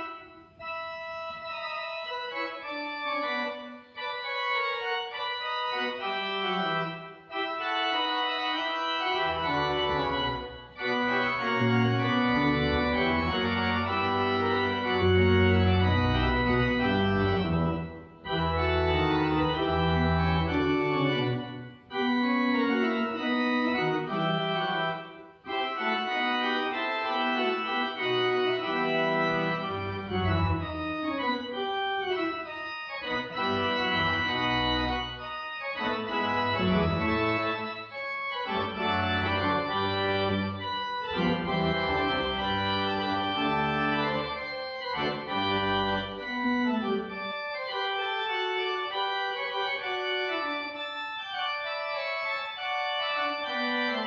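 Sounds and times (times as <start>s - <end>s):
pipe organ chords: 0.0s - 54.0s.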